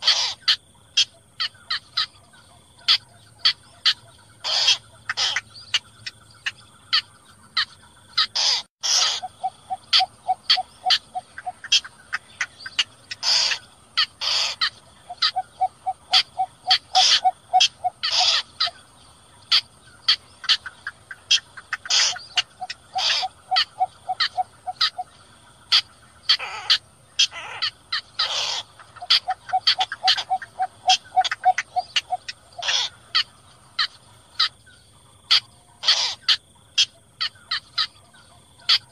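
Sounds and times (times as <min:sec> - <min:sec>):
sharp short bird calls: 0:02.8 - 0:18.8, 0:19.4 - 0:34.5, 0:35.3 - 0:38.0
rapid low clucks: 0:08.4 - 0:18.8, 0:19.4 - 0:34.5.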